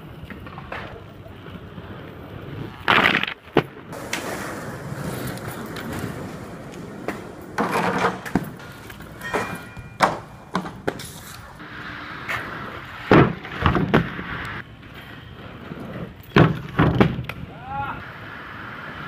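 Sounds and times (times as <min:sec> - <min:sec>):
inline skates rolling on pavement: 0:00.0 - 0:19.0
skates clacking on hard surfaces: 0:02.8 - 0:11.6.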